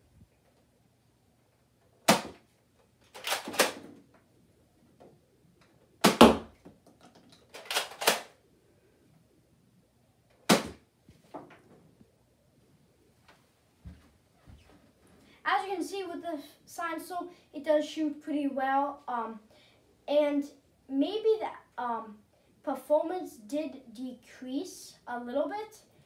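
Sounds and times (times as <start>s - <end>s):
toy blaster firing clack: 3.1s - 3.8s, 7.5s - 8.3s
toy blaster re-cocking clacks: 3.1s - 3.8s, 7.5s - 8.3s.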